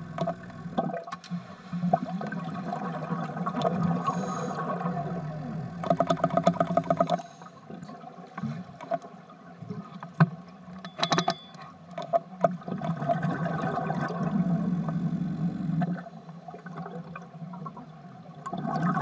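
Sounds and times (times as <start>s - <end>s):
scattered underwater clicks and pops: 0.1s - 1.4s, 5.8s - 7.3s, 10.0s - 13.2s
underwater breath bubbling: 1.6s - 7.7s.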